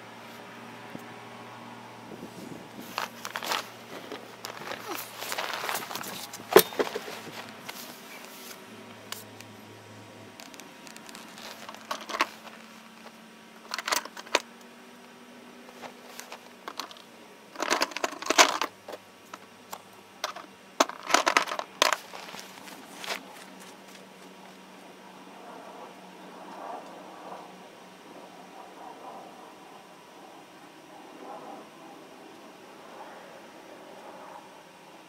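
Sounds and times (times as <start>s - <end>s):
rustling and crinkling: 2.1s - 9.3s, 10.3s - 14.5s, 15.6s - 24.6s.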